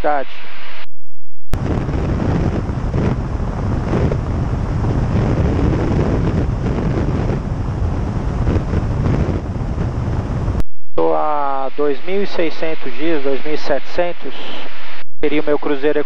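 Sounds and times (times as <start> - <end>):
wind rushing over microphone: 1.6 - 10.7.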